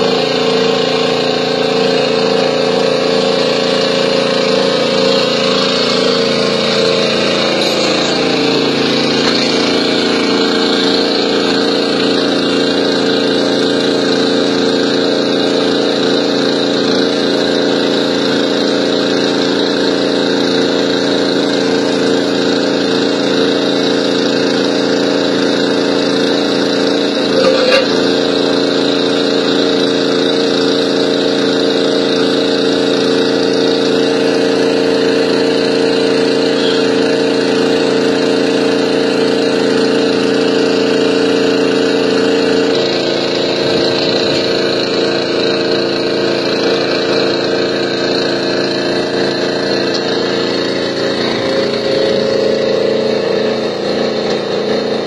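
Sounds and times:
excavator diesel engine running: 0.0s - 55.0s
excavator clunk: 6.7s - 9.6s, 27.3s - 28.2s.

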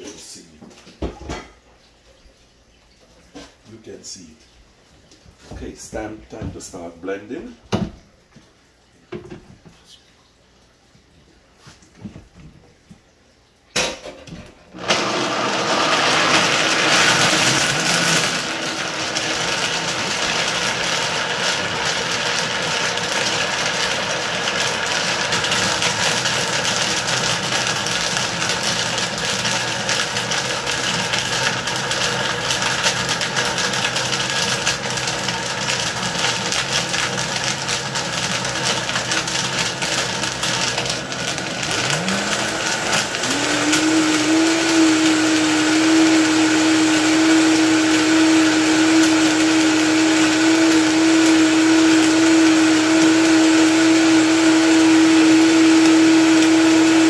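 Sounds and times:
blender running: 14.7s - 57.0s.

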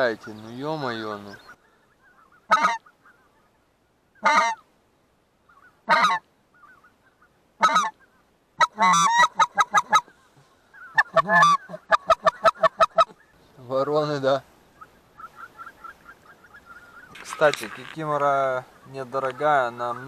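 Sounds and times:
goose clucking calls: 0.2s - 3.6s, 4.2s - 4.6s, 5.5s - 13.4s, 14.8s - 20.0s
goose honking: 1.5s - 3.5s, 4.2s - 4.6s, 5.5s - 10.2s, 10.8s - 13.4s, 15.2s - 20.0s.

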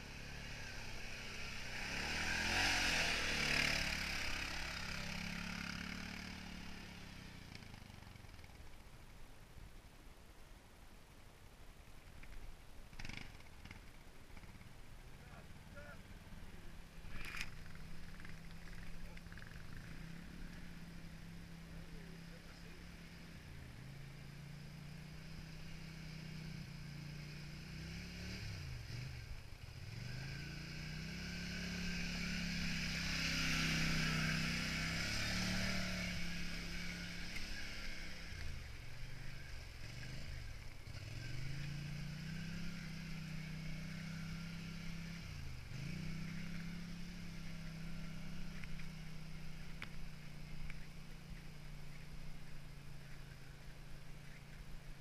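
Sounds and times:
quad engine revving: 0.0s - 8.0s, 12.9s - 13.8s, 15.4s - 51.2s.

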